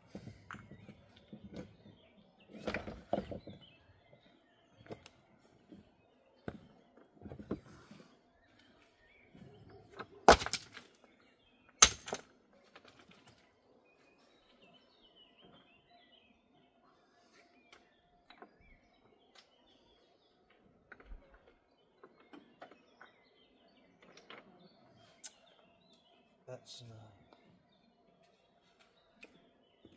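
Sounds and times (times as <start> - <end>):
faint bird chirps: 12.6 - 29.9
faint clicks and handling noise: 20.5 - 26.1.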